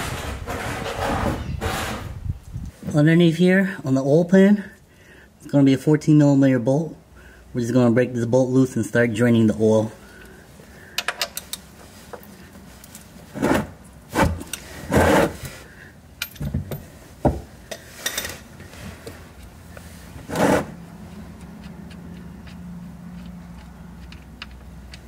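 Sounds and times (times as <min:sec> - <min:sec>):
scraping and rubbing handling noises: 0:00.0 - 0:03.0, 0:11.3 - 0:25.0.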